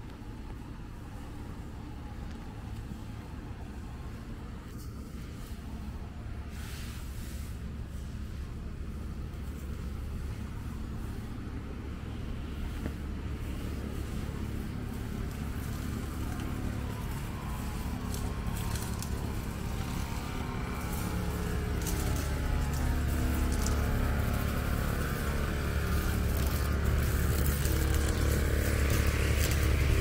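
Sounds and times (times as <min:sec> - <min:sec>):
vehicle engine running: 0:07.8 - 0:30.0.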